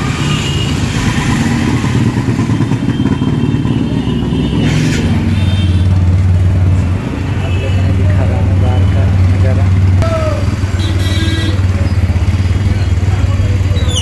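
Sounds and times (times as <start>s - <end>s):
vehicle engine idling: 5.6s - 14.0s.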